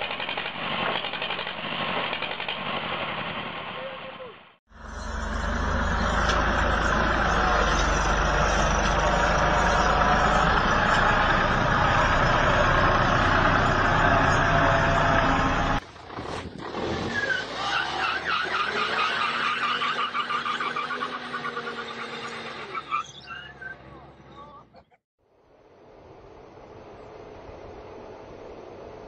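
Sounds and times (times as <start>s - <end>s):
tractor engine under heavy load: 4.7s - 17.7s
car engine revving: 4.7s - 22.8s
wheels spinning on pavement: 4.7s - 23.8s.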